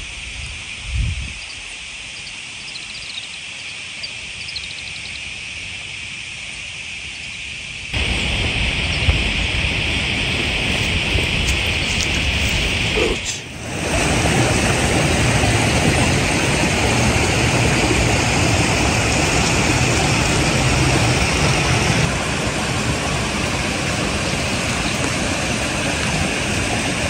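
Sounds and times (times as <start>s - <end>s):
loud rushing hiss: 7.1s - 27.0s.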